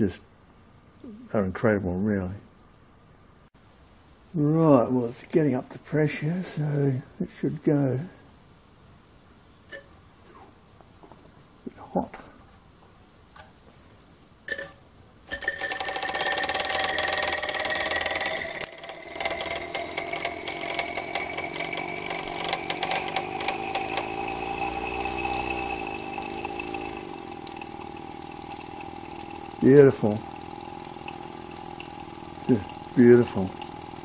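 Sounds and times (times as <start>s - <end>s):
model steam engine running: 15.3s - 34.0s
steam hissing: 19.0s - 34.0s.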